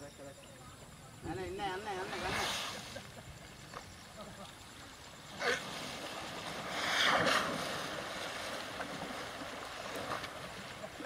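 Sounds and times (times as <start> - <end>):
elephant splashing in water: 4.9 - 11.0.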